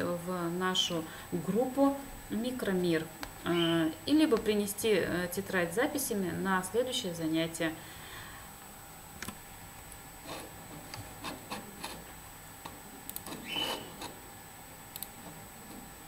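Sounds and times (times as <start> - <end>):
computer mouse clicks: 13.1 - 14.1, 14.9 - 15.2.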